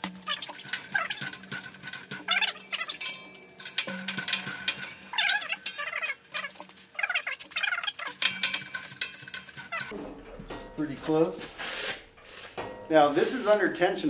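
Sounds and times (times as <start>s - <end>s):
clicks and knocks: 0.0s - 6.8s
hydraulic press squeaking: 0.0s - 12.8s.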